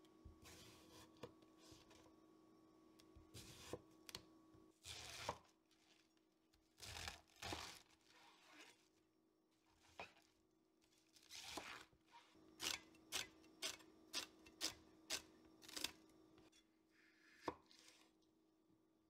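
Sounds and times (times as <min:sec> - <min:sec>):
knife cutting through lettuce: 0:04.8 - 0:06.1, 0:06.8 - 0:08.9, 0:11.2 - 0:11.9.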